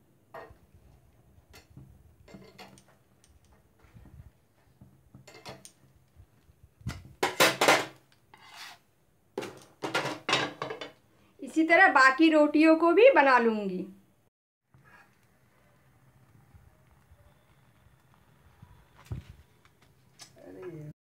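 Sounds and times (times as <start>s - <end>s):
metal pan clattering on a burner: 5.2s - 5.7s, 7.2s - 8.0s, 9.4s - 11.0s
metal spatula scraping a grate: 8.3s - 8.9s.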